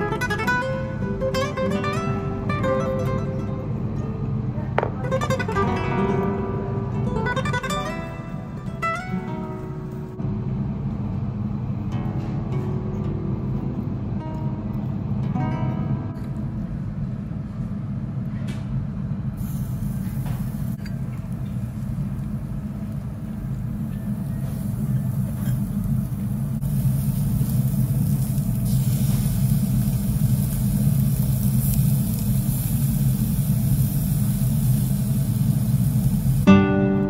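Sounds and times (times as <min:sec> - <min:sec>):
steady low rumble: 0:09.4 - 0:15.3, 0:15.9 - 0:36.5
beef sizzling on a grill: 0:24.1 - 0:36.5.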